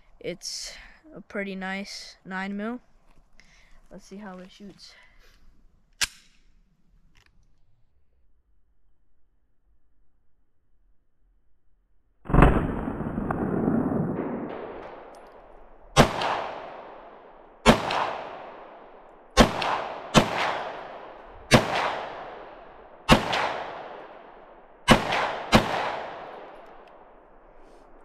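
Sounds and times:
pistol shots with echo: 15.9 - 26.8.

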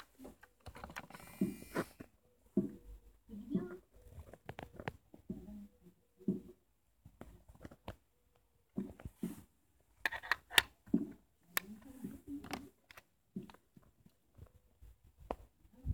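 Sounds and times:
plastic clicks and knocks: 0.0 - 1.3, 10.0 - 14.5.

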